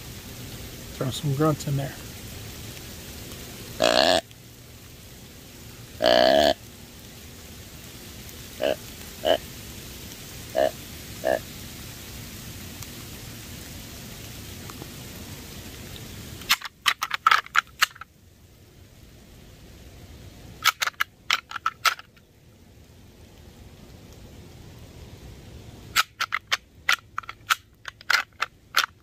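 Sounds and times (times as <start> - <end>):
light rain hissing: 0.0 - 29.0
deer grunt call: 3.8 - 4.2, 6.0 - 6.6, 8.6 - 9.4, 10.5 - 11.4.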